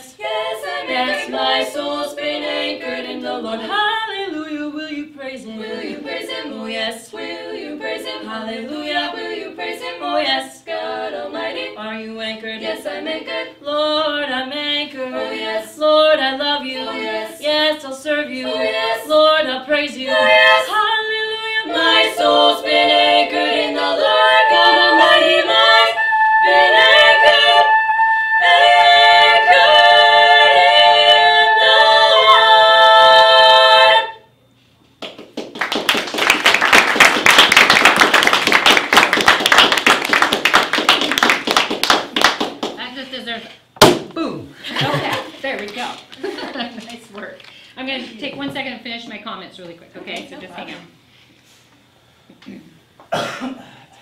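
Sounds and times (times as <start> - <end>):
women singing in close harmony: 0.0 - 34.3
people clapping: 35.0 - 42.8.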